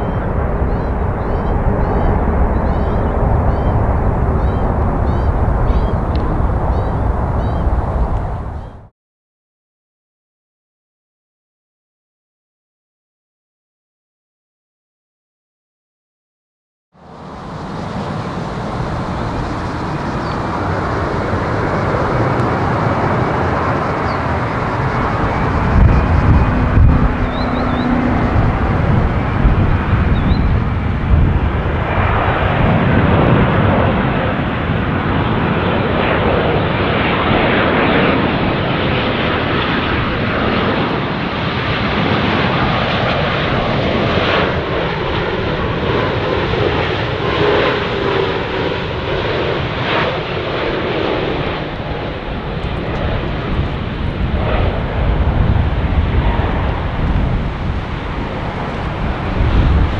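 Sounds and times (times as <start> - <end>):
jet engine roar: 0.0 - 8.9, 17.0 - 59.9
jet whine sliding down in pitch: 17.0 - 34.4.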